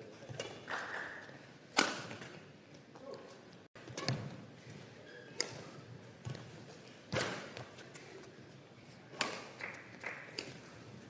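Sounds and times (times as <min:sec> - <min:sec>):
rackets hitting shuttlecock: 0:00.3 - 0:02.4, 0:03.8 - 0:04.4, 0:05.3 - 0:06.5, 0:07.1 - 0:08.2, 0:09.1 - 0:10.8.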